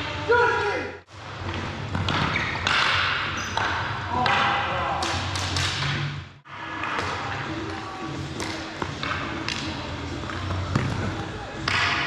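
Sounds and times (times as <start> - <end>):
sticks slapping ball: 1.5 - 6.1, 6.8 - 10.9, 11.6 - 12.0.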